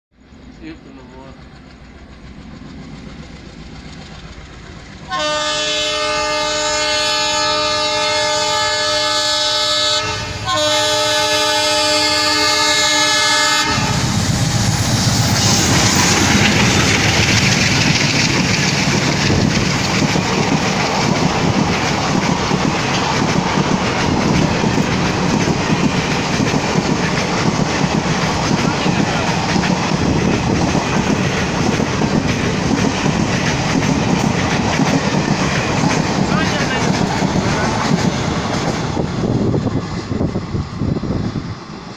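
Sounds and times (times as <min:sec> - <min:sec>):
train rushing past: 0:00.2 - 0:41.9
locomotive horn blasts: 0:05.1 - 0:14.1.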